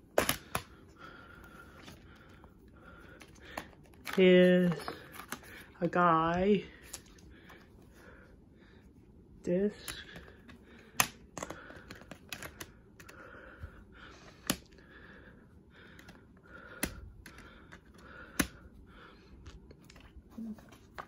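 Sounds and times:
discs knocking against plastic: 0:00.1 - 0:00.7
plastic dvd case clicking: 0:00.1 - 0:00.7, 0:10.0 - 0:13.2.

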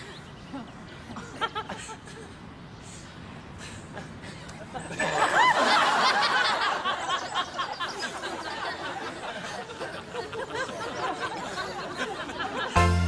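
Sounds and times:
audience laughing: 0:04.0 - 0:13.0.

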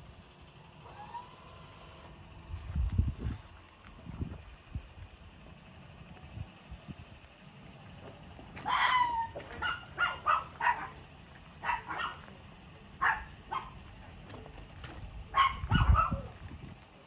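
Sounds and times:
dog barking: 0:08.6 - 0:11.0, 0:11.6 - 0:12.3, 0:13.0 - 0:13.8, 0:15.3 - 0:16.4.

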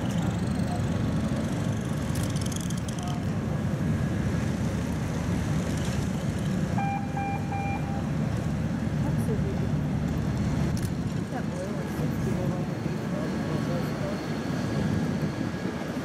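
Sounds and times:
short high-pitched beeps: 0:06.8 - 0:08.1.

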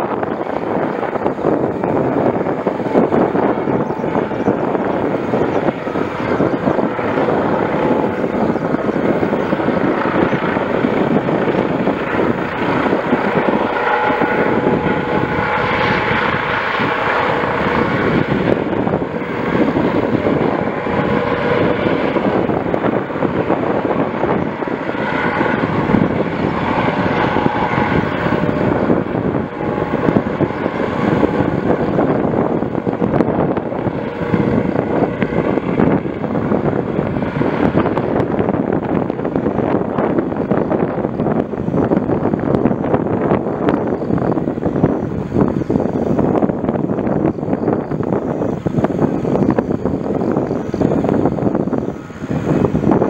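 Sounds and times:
helicopter hovering: 0:00.0 - 0:53.0.

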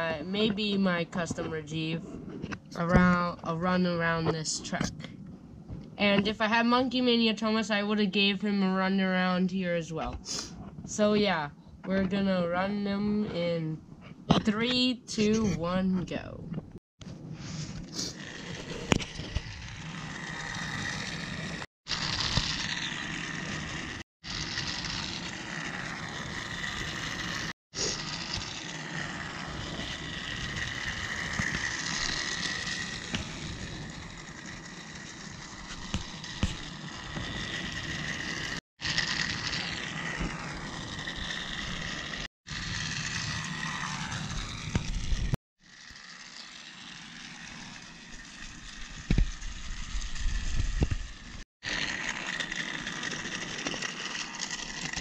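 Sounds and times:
toy train motor whir: 0:17.4 - 0:55.0.

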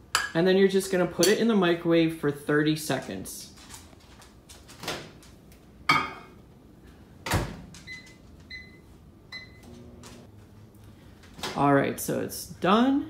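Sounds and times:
microwave oven humming: 0:07.8 - 0:10.5.

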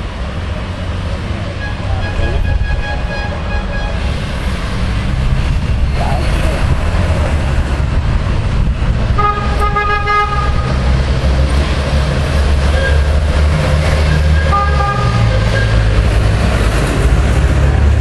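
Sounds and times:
car horn toots: 0:01.6 - 0:04.1, 0:09.2 - 0:10.7, 0:14.1 - 0:15.9.

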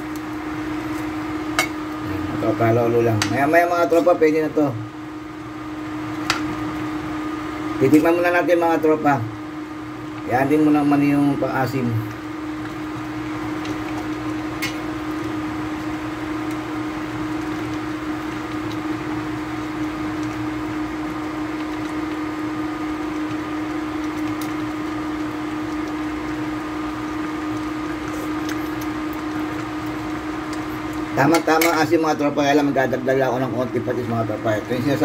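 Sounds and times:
cooling fan whirring: 0:00.0 - 0:35.0
electrical hum: 0:00.0 - 0:35.0.

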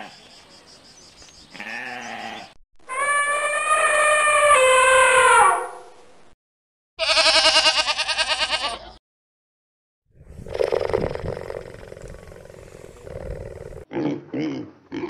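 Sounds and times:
quavering animal call: 0:01.5 - 0:05.8
rough low animal call: 0:10.2 - 0:13.9.

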